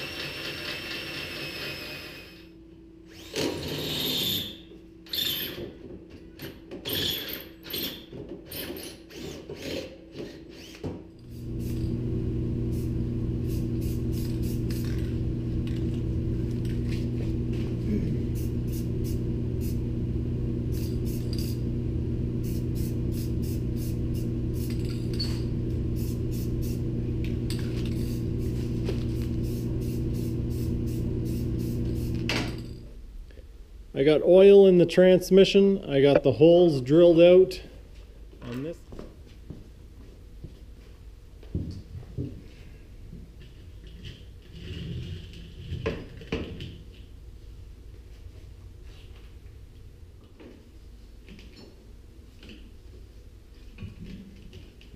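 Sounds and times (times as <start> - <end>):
electric drill boring steel: 0.0 - 2.5, 3.1 - 5.6, 10.5 - 32.8
steady low tonal hum: 11.2 - 34.7.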